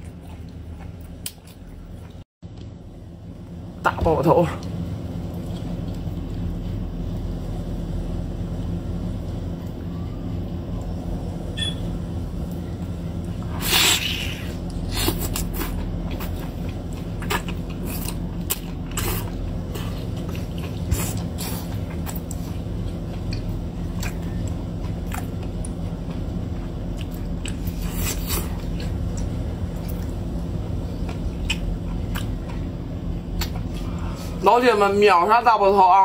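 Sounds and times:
wet eating sounds: 0.0 - 2.2, 4.5 - 6.9, 13.3 - 34.4
low hum: 0.0 - 36.0
chewing smacks and clicks: 31.0 - 32.6.

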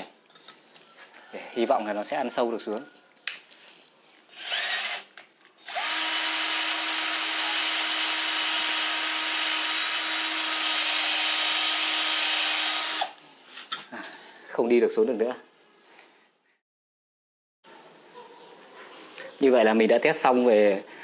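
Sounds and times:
drill bit grinding in steel: 4.3 - 13.2
drill motor whine: 4.4 - 13.2.

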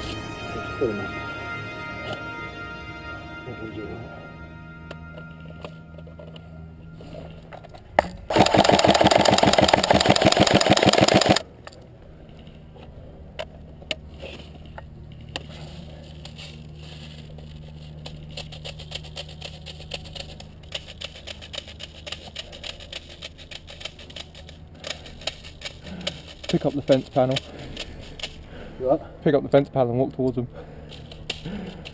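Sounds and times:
airsoft rifle full-auto burst: 8.3 - 11.4.

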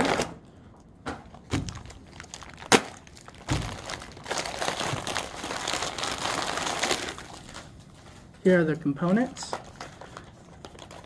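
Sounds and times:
plastic bag crinkling: 1.3 - 11.0.

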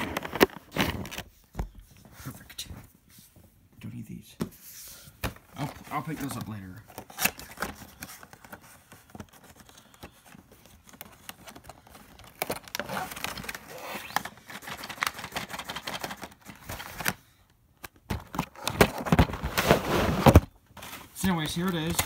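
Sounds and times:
cardboard box scraping and clicking: 18.6 - 20.5.

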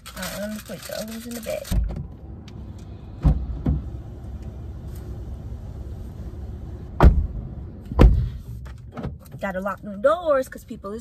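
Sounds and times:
low steady rumble: 0.0 - 11.0
dull thumps inside car: 3.1 - 4.1, 6.9 - 9.5
car door shutting: 3.1 - 5.2, 6.8 - 9.2.

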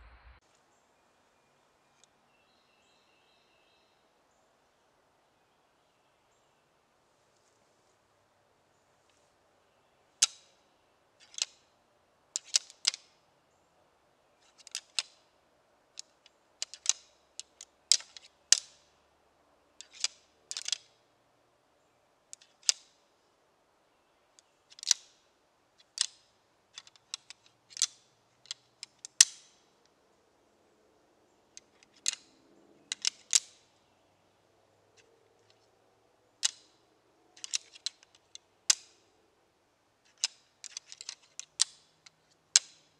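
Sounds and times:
antlers clacking together: 11.2 - 11.7, 12.4 - 13.1, 14.4 - 15.2, 15.9 - 18.9, 19.8 - 20.9, 24.4 - 25.2, 25.8 - 29.7, 31.5 - 33.6, 36.4 - 36.8, 37.4 - 39.0, 40.1 - 42.9.

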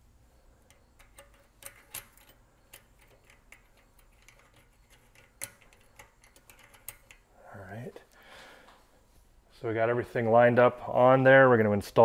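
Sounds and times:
metallic clicks of bicycle cogs: 0.6 - 7.3.

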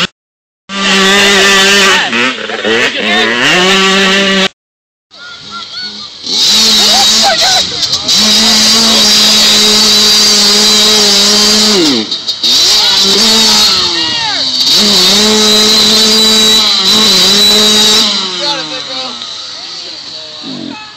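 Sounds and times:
dirt bike engine revving: 0.7 - 4.5, 5.2 - 20.9
bike churning through muddy water: 5.4 - 20.4.

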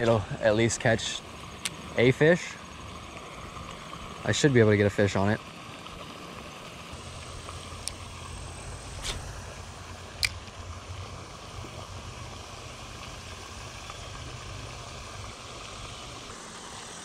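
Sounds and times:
steady low hum: 0.0 - 17.0
fishing reel clicks: 7.2 - 9.3.

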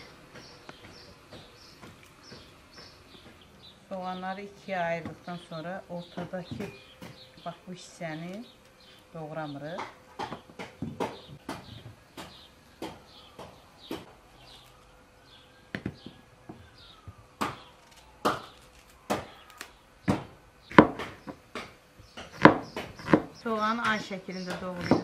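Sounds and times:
cleaver chopping on wooden board: 9.8 - 14.1, 17.4 - 19.4, 20.1 - 25.0.

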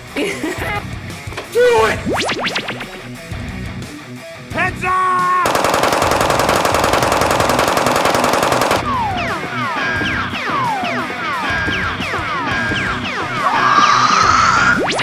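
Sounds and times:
background music: 0.0 - 15.0
rising tone: 2.0 - 3.2
machine-gun fire: 5.5 - 9.2.

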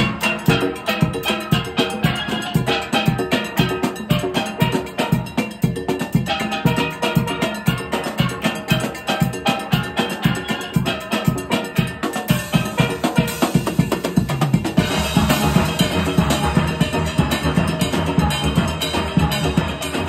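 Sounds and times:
steady drum beat: 0.0 - 20.0
steel pans ringing melody: 0.0 - 20.0.

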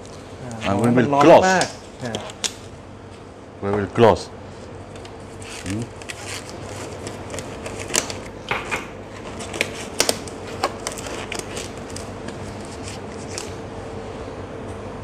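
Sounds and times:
disposable gloves crinkling: 5.2 - 8.4, 9.1 - 13.6.

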